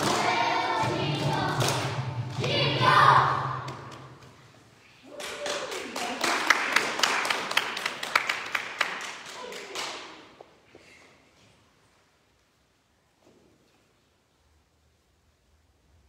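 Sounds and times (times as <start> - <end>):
small group applauding: 5.0 - 10.5.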